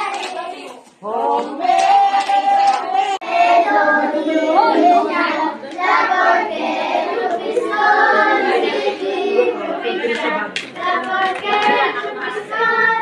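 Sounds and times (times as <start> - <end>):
hand claps: 0.0 - 1.0, 1.7 - 2.9, 10.0 - 12.4
children singing together: 0.0 - 13.0.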